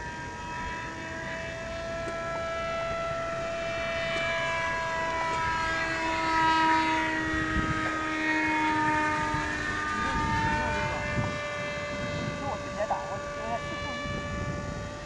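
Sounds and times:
model jet electric motor whine: 0:00.0 - 0:15.0.

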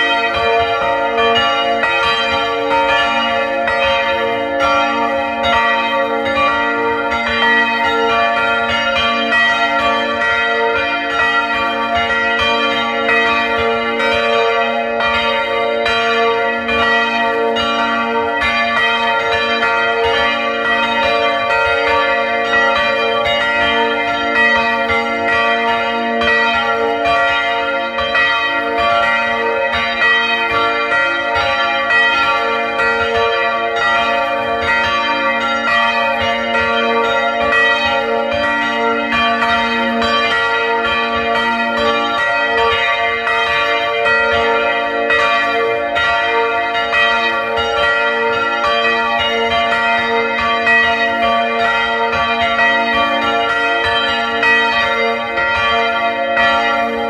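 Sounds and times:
church bells pealing: 0:00.0 - 0:57.0.

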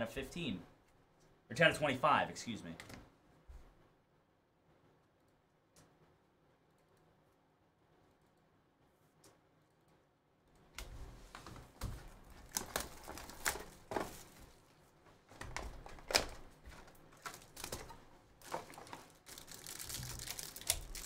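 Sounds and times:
packaging rustling: 0:11.4 - 0:21.0.

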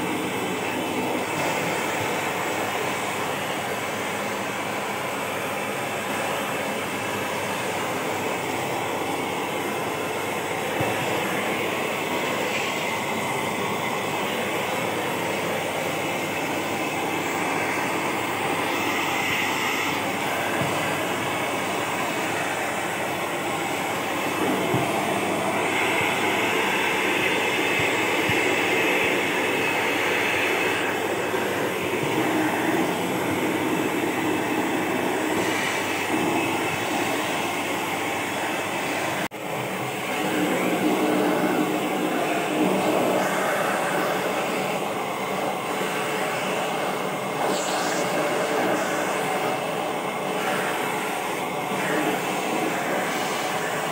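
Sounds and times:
vacuum cleaner running: 0:00.0 - 0:53.9.

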